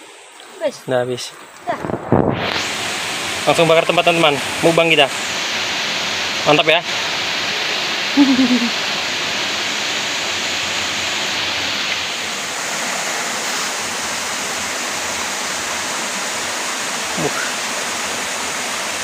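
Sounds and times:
flowing river water: 0.0s - 19.0s
person speaking: 8.2s - 8.7s.

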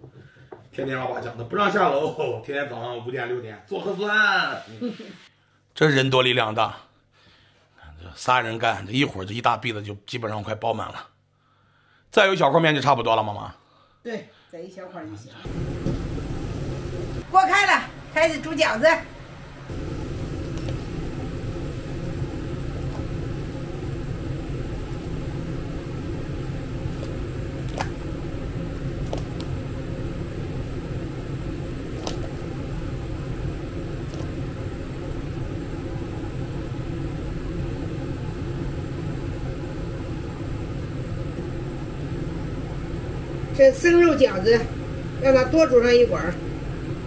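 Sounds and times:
water boiling and bubbling: 15.4s - 17.3s, 19.3s - 47.0s
low hum: 15.4s - 47.0s.

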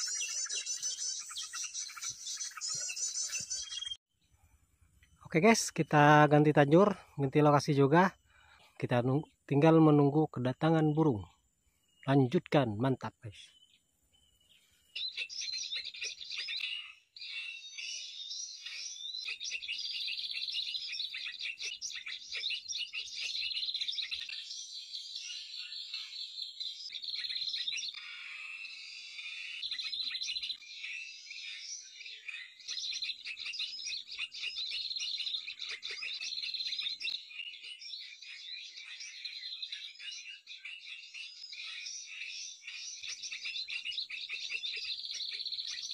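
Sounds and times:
songbirds twittering and chirping: 0.0s - 45.9s.

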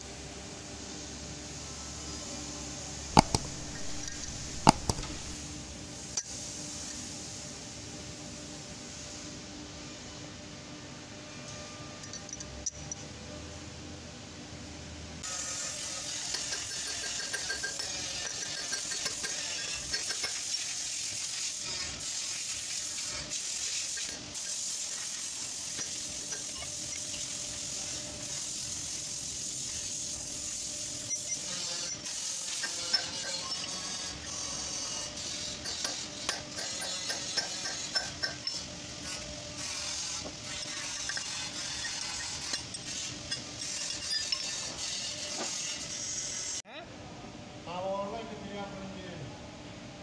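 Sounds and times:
metallic clinks and knocks: 3.2s - 5.4s
steady hiss: 18.5s - 35.0s.

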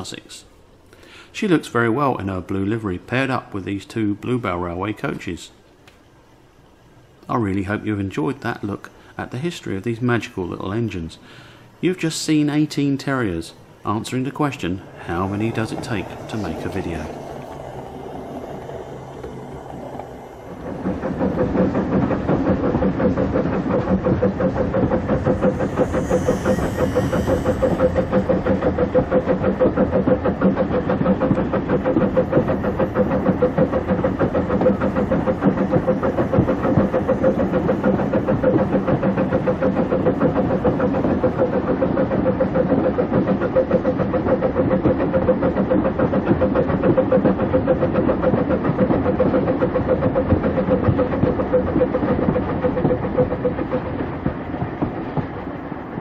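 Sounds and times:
wheels rattling on rail: 11.9s - 56.0s
model train motor whine: 24.6s - 29.4s.

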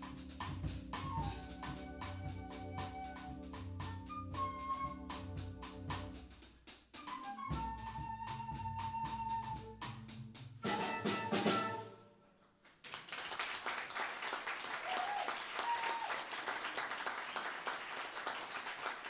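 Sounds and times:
drum and cymbal hits: 0.0s - 11.8s
jazz trio playing: 0.0s - 12.0s
audience applause: 12.7s - 19.0s.

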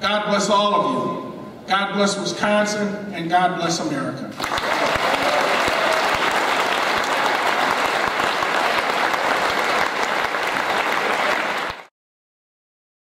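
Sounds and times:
large audience applauding: 4.4s - 11.9s.

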